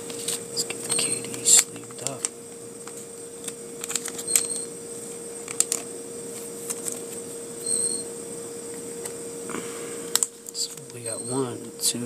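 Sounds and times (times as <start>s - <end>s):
steady hum: 0.0s - 12.0s
plastic sleeve clicks and rustles: 0.1s - 4.6s, 5.4s - 5.9s
short high squeak: 4.2s - 4.7s, 7.6s - 8.1s, 11.1s - 11.5s.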